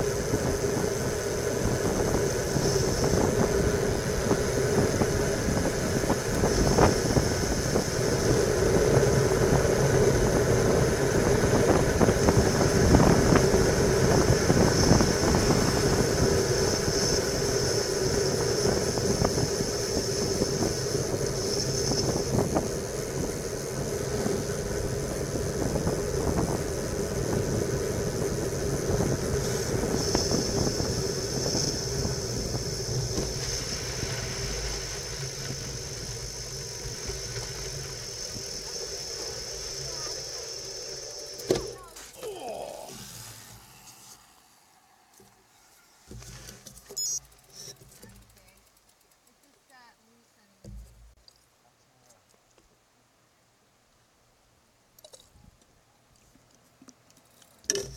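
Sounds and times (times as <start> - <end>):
wind rushing over microphone: 0.0 - 41.8
tyres humming on asphalt: 0.0 - 49.7
bike knocks and rattles: 50.6 - 51.2.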